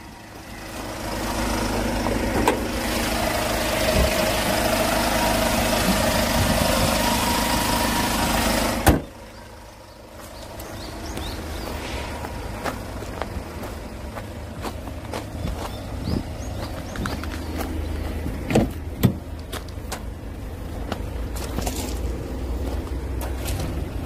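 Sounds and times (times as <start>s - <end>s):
van engine idling: 0.0s - 24.0s
hood slamming shut: 2.0s - 2.8s, 8.8s - 9.2s, 18.5s - 19.3s.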